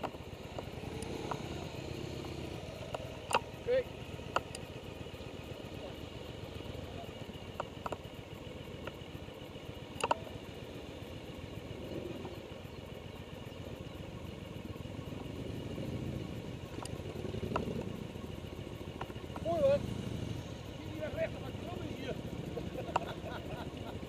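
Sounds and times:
engine rumble: 0.0 - 24.0
light clicks: 4.3 - 4.7, 9.9 - 10.4, 22.8 - 23.2.

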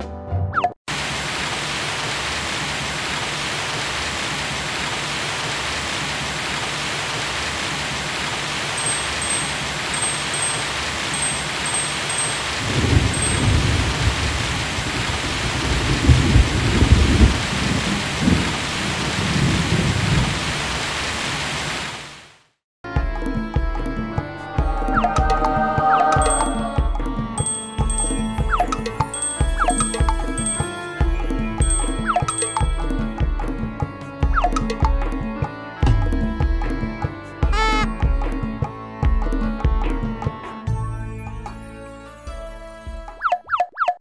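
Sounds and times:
heavy rain: 0.9 - 22.5
faint high tinkles: 8.8 - 13.8, 26.2 - 30.9, 31.6 - 33.1
thunder rumbling: 12.6 - 20.9.

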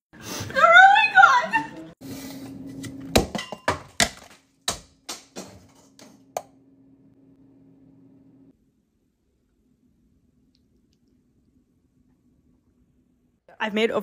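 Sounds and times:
faint steady hum: 6.3 - 13.4.

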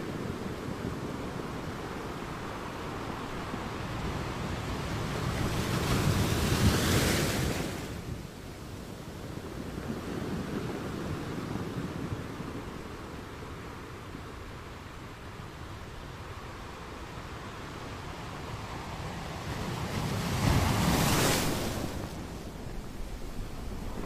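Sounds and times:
waves washing: 16.4 - 24.0
wind buffeting microphone: 18.2 - 24.0.

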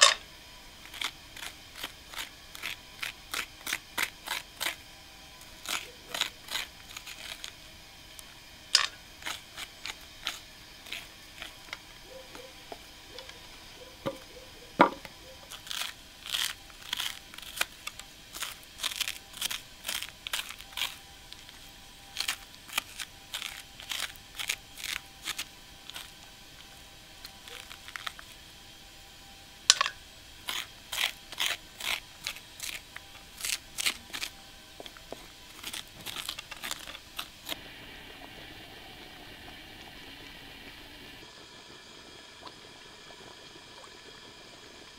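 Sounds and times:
spoon scraping pumpkin: 0.8 - 13.3, 14.9 - 28.4, 29.7 - 37.6.

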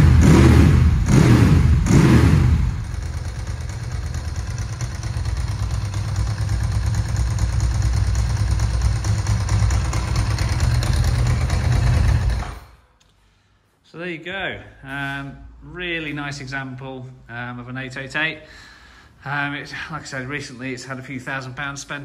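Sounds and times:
motorcycle engine revving and idling: 0.0 - 12.8.

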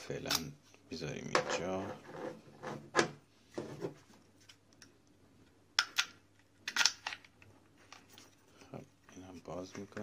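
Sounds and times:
plastic clicks: 5.8 - 7.5.

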